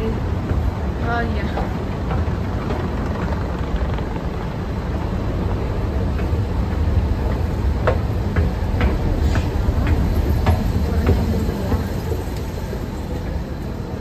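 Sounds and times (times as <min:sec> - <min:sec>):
escalator low rumble: 0:00.0 - 0:14.0.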